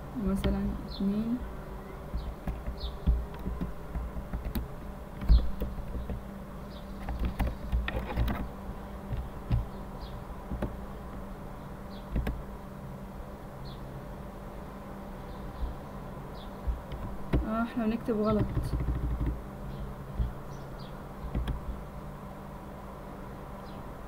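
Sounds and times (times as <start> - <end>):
steady buzzing hum: 0.0 - 24.0
keyboard keys tapping: 2.1 - 6.3, 7.0 - 8.5, 9.1 - 9.8, 12.1 - 12.4, 16.6 - 17.6, 18.2 - 19.4, 21.3 - 21.6.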